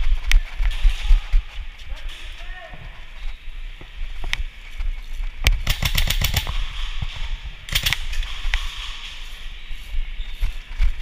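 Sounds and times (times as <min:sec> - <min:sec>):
airsoft rifle firing: 0:05.5 - 0:09.2.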